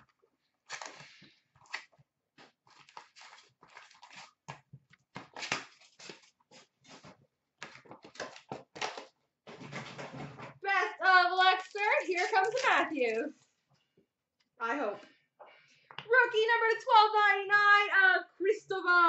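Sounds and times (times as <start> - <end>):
card packs crinkling and rustling: 0.5 - 9.9, 11.4 - 13.4.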